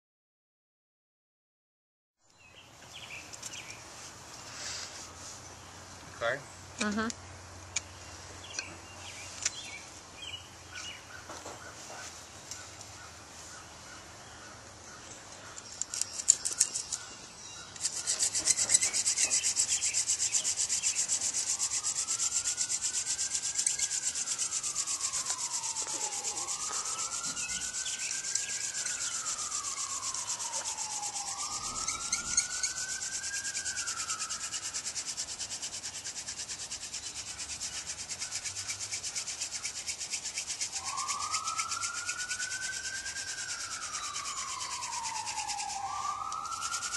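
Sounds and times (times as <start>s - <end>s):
wooden spindle grinding on board: 17.8s - 40.8s
faint sweeping tone: 18.0s - 34.7s.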